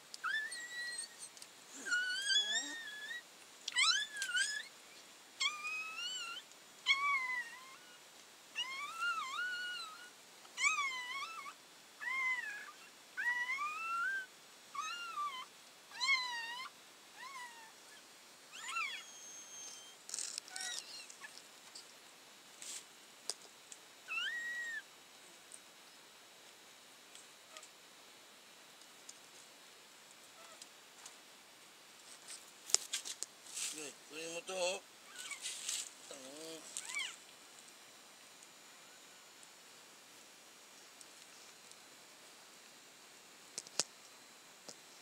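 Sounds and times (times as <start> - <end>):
puppies crying: 0.2 - 3.2, 3.8 - 4.7, 5.4 - 8.0, 8.6 - 21.3, 24.1 - 24.8, 35.1 - 35.5, 36.8 - 37.2.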